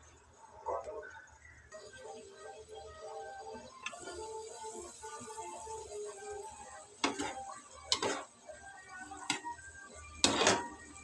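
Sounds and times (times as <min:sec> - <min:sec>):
metal cookware clinking: 0:07.0 - 0:08.3, 0:10.1 - 0:11.0.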